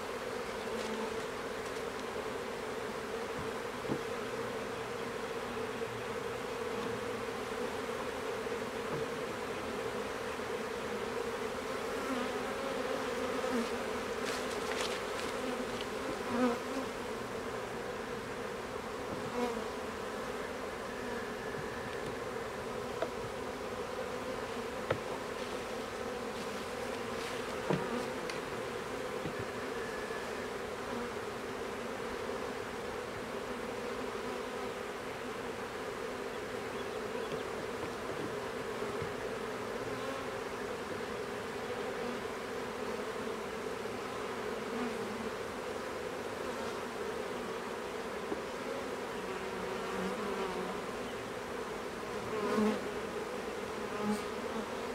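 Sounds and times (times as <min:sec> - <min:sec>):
bees buzzing: 0:00.0 - 0:54.9
sharp knocks of hive frames: 0:03.3 - 0:04.2, 0:08.8 - 0:09.2, 0:24.8 - 0:25.3, 0:26.9 - 0:28.4, 0:29.2 - 0:29.6.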